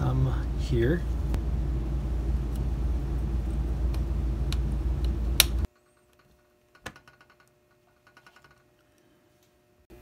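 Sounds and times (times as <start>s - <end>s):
low background rumble: 0.0s - 5.7s.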